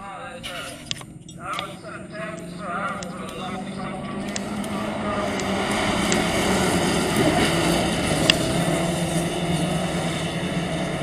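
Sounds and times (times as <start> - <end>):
racing car engines droning: 0.0 - 11.0
sharp click: 0.4 - 1.8.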